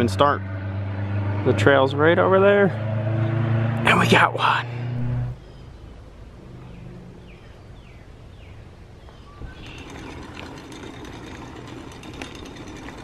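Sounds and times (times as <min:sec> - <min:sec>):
low hum: 0:04.6 - 0:07.8
bicycle rolling on pavement: 0:09.1 - 0:13.0
bicycle rattles and ticks: 0:09.4 - 0:13.0.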